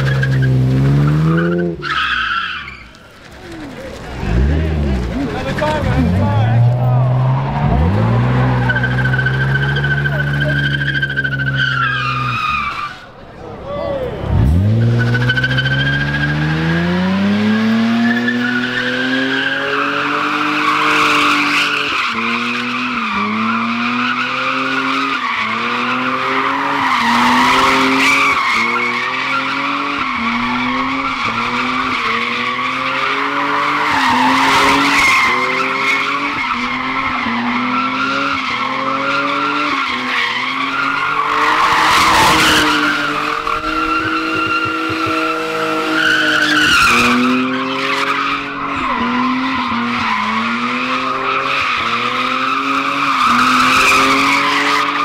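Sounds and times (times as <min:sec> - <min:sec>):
tyres squealing: 0:01.2 - 0:16.4, 0:18.2 - 0:55.0
car engine revving: 0:03.3 - 0:12.5, 0:14.0 - 0:55.0.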